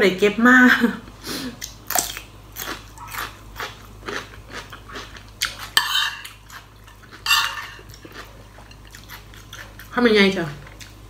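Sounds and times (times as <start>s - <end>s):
crunchy chewing of vegetables: 1.5s - 11.0s
metal spoon scraping a plate: 5.7s - 6.4s, 7.2s - 7.9s.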